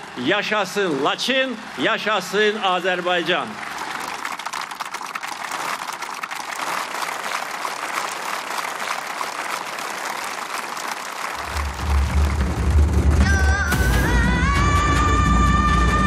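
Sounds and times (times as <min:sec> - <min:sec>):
crowd applauding: 0:00.0 - 0:14.0.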